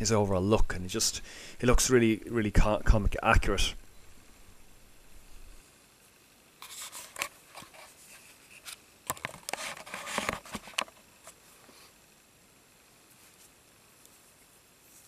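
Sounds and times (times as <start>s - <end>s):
rustling and clicking handling noise: 6.6s - 11.5s.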